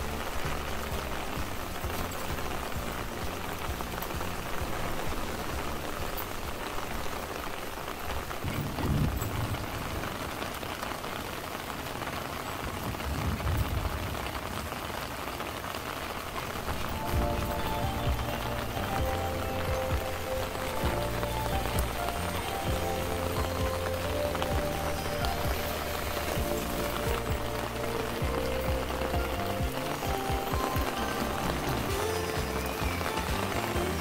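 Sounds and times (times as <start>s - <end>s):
soft music: 0.0s - 8.1s, 16.4s - 34.0s
rain falling on plants: 0.0s - 34.0s.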